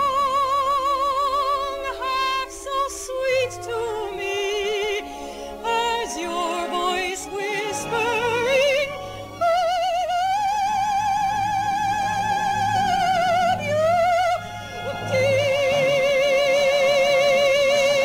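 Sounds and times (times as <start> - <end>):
operatic soprano singing: 0.0 - 18.0.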